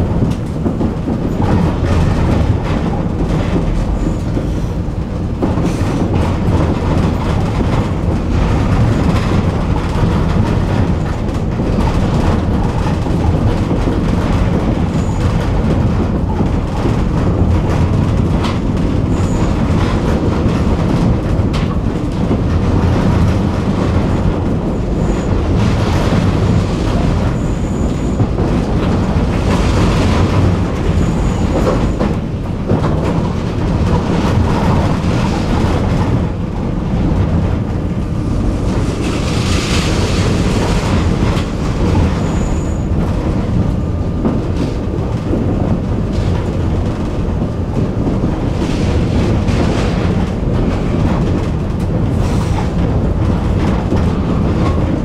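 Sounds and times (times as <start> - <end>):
tram wheels running on rails: 0.0 - 55.0
high-pitched wheel squeaks: 30.9 - 32.0.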